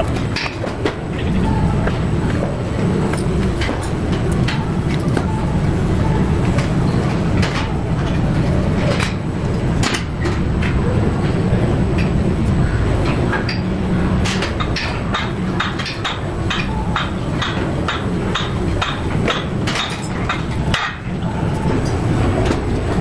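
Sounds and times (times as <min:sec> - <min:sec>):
steady low rumble: 0:00.0 - 0:23.0.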